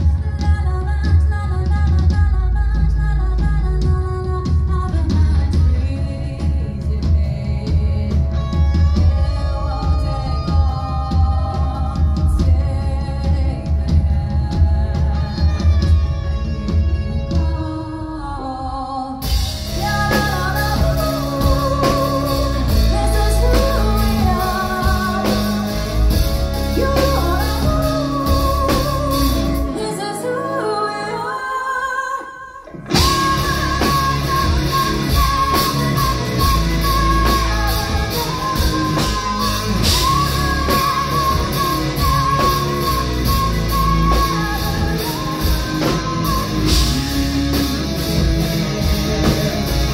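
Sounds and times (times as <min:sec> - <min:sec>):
live rock band: 0:00.0 - 0:49.9
woman singing: 0:00.0 - 0:49.9.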